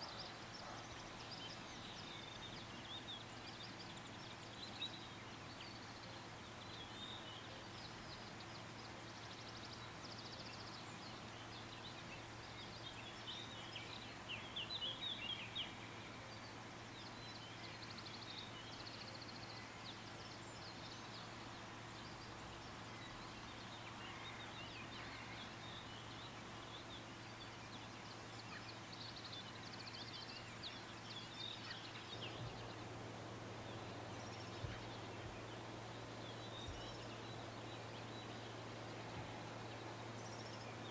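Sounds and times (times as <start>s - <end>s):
songbirds chirping: 0.0s - 40.9s
steady low hum: 30.3s - 40.9s.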